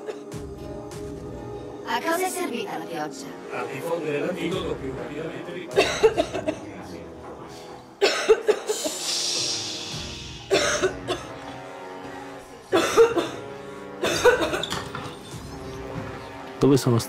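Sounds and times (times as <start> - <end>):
background music with sustained tones: 0.0 - 17.0
person coughing: 5.7 - 6.7, 8.0 - 9.2, 10.4 - 11.4, 12.7 - 14.7.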